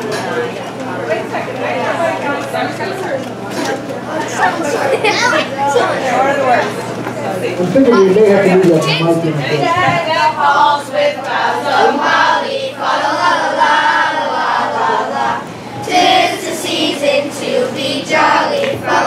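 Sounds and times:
children's choir singing a carol: 9.0 - 19.0.

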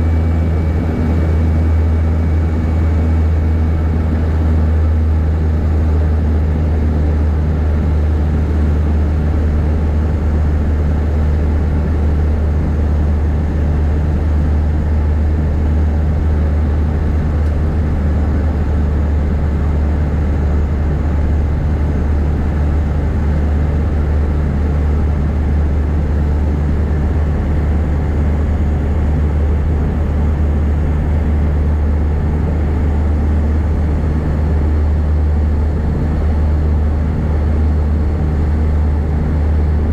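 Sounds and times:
turboprop engines droning in cabin: 0.0 - 39.9.

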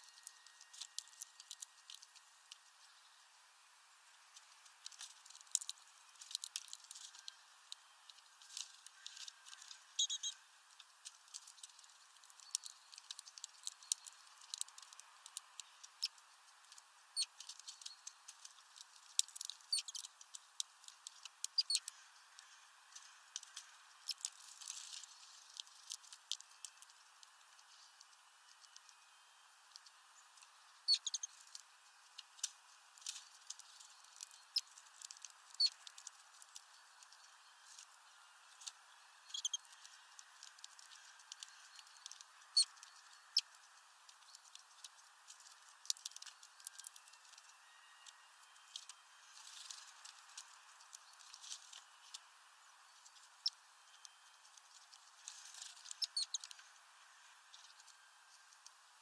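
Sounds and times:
birds pecking at feeder: 0.0 - 3.0, 4.3 - 28.9, 29.6 - 52.3
short high bird chirps: 10.0 - 10.4.

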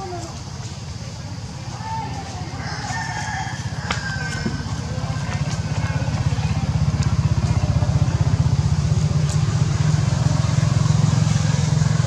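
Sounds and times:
small engine idling: 4.2 - 12.0.

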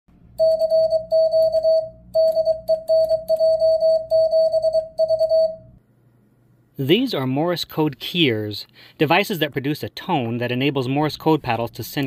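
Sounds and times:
morse code sidetone beeps: 0.4 - 5.7.

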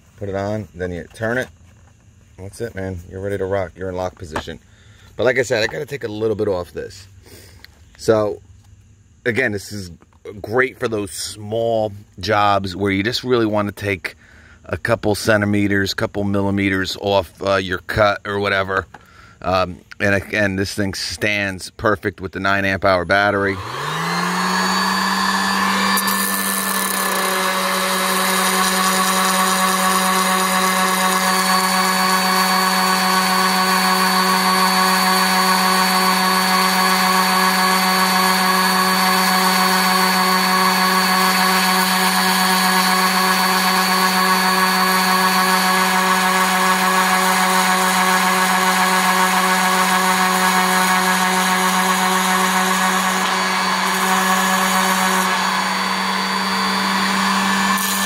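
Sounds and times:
orbital sander running: 23.2 - 58.0
sanding wood: 23.5 - 58.0.

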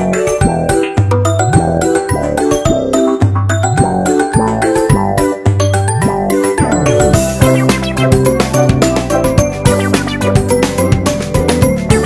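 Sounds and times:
electronic music with steady beat: 6.0 - 10.5.

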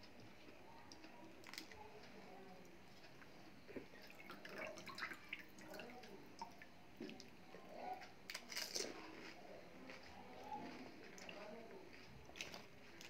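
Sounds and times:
liquid drips: 3.8 - 7.4.

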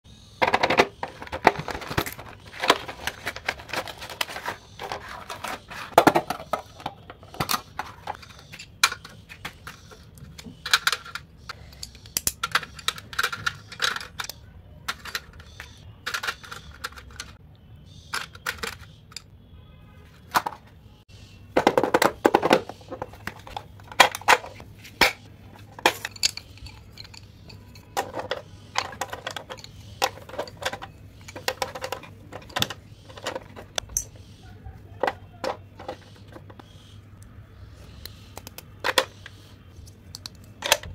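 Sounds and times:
pencils set into plastic box: 0.4 - 17.4, 18.1 - 19.2, 21.6 - 34.2
cardboard packaging rustling: 1.2 - 6.4.

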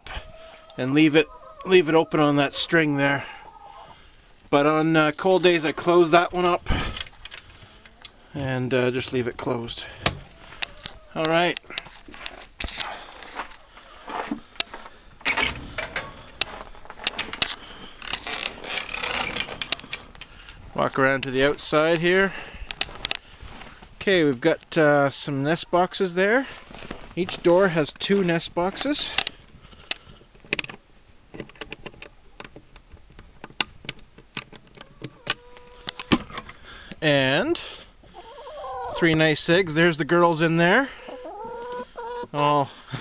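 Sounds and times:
footsteps crunching in snow: 11.8 - 15.0, 16.3 - 18.7, 26.5 - 27.8.

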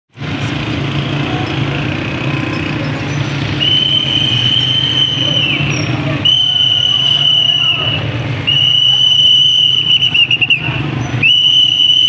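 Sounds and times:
engine rumbling: 0.1 - 12.0
high whistle blast: 3.6 - 10.6, 11.2 - 12.0.

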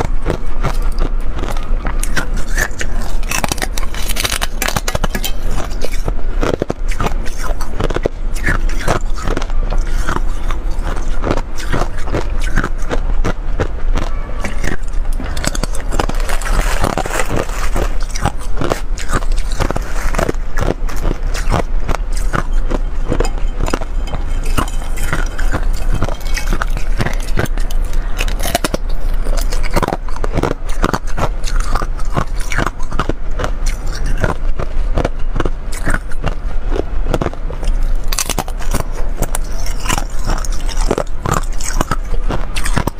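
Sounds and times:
ice crunching while chewed: 0.0 - 42.9.

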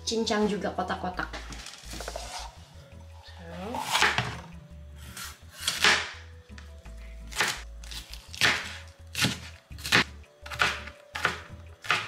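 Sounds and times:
knife chopping on plastic board: 8.3 - 12.0.

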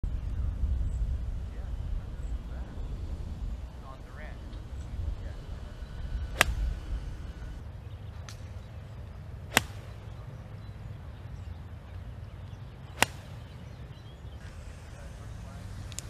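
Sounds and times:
low background rumble: 0.0 - 16.0
golf club striking ball: 6.1 - 7.6, 9.5 - 10.2, 12.9 - 13.8.

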